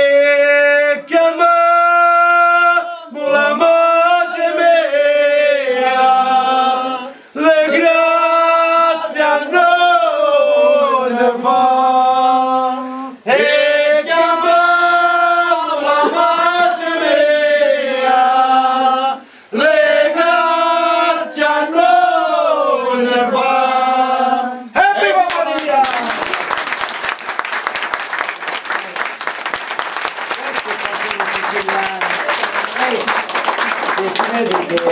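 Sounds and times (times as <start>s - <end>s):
men singing unaccompanied: 0.0s - 25.0s.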